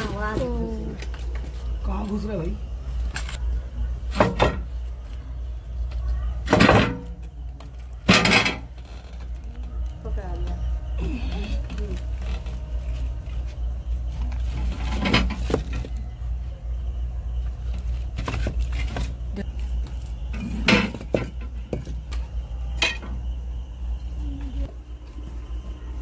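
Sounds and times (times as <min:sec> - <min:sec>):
steady low hum: 0:00.0 - 0:26.0
bricks and stones clinking: 0:14.2 - 0:16.0, 0:17.8 - 0:22.2.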